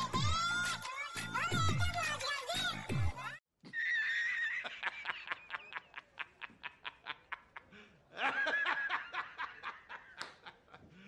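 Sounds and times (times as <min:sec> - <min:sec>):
man laughing hard: 0:03.7 - 0:11.0.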